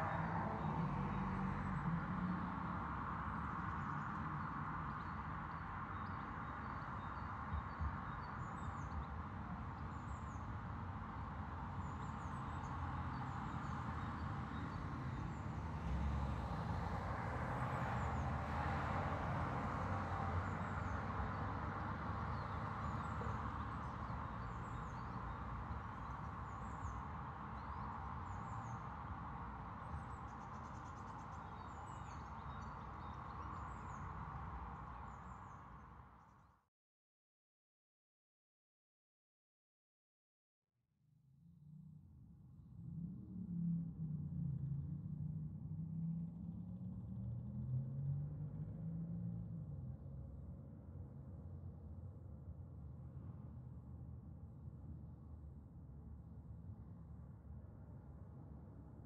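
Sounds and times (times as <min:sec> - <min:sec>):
traffic rumble: 0:00.0 - 0:36.1
small birds chirping: 0:22.3 - 0:35.8.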